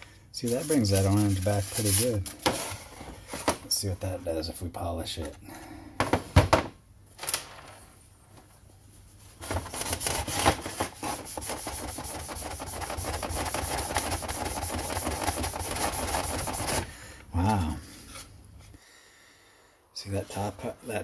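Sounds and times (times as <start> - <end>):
cloth rubbing on plastic: 0.4 - 3.0, 8.9 - 16.9.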